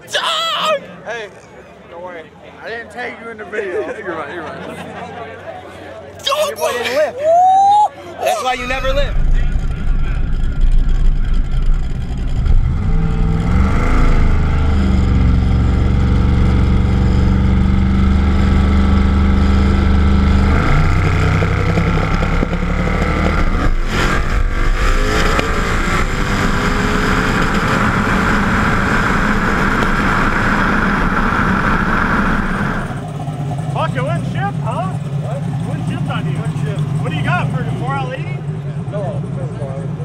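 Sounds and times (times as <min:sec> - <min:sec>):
car engine revving: 0:08.3 - 0:39.5.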